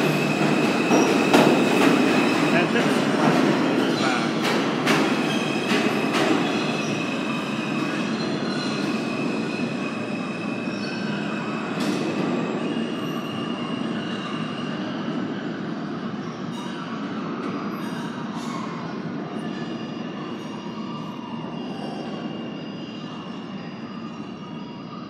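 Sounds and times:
train wheels rumbling on rails: 0.0s - 19.3s
wheels squealing on rails: 0.0s - 25.0s.

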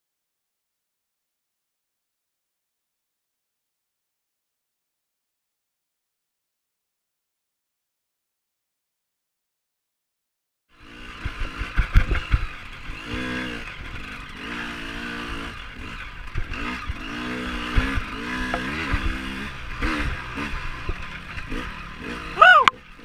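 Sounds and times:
dirt bike engines revving: 10.8s - 23.0s.

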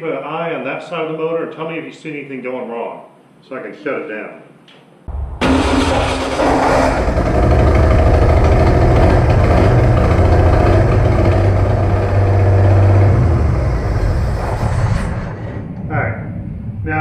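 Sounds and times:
engine running roughly: 5.1s - 15.3s.

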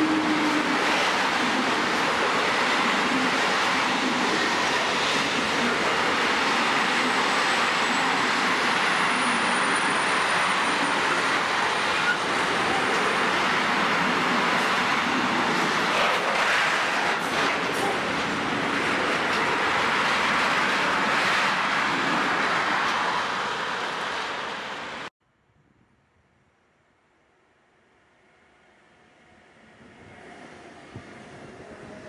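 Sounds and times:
train wheels on rails: 0.0s - 25.1s.

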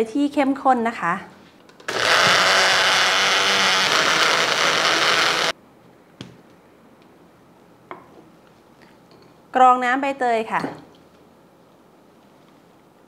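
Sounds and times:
blender running: 1.9s - 5.6s.

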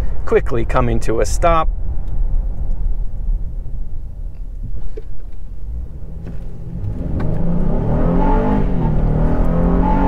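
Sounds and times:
engine and road rumble: 0.0s - 10.0s
engine revving: 5.7s - 10.0s.

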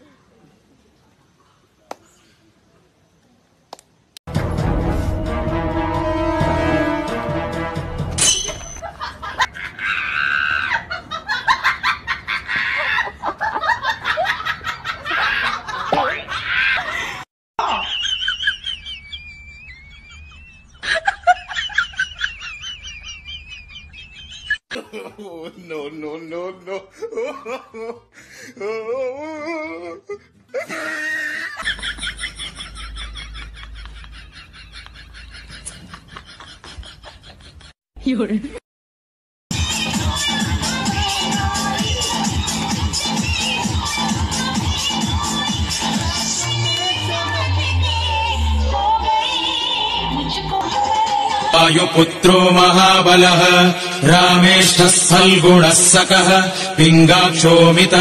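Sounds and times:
laughter with high squeals: 8.6s - 24.7s, 28.6s - 37.8s.

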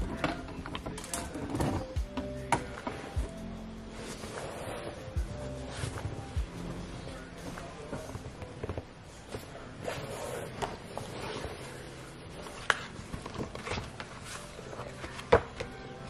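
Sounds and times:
paper cards rustling: 10.8s - 15.8s.

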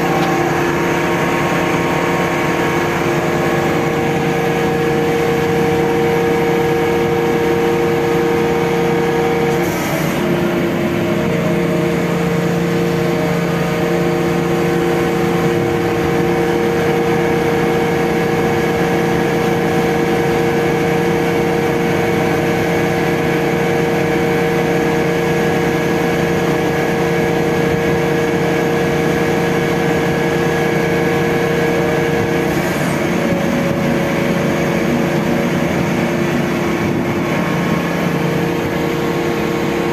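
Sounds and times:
diesel engine running with whine: 0.0s - 39.9s.

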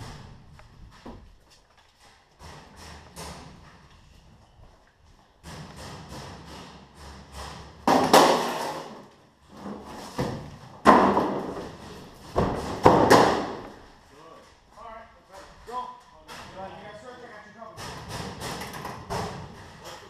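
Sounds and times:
metal locker doors banging: 10.1s - 13.8s, 17.7s - 20.0s.

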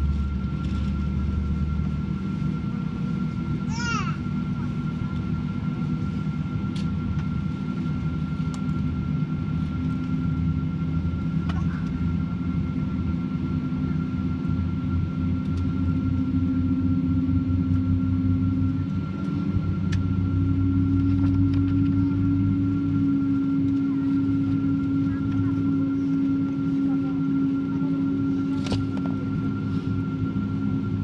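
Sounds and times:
low cabin drone: 0.0s - 31.0s.

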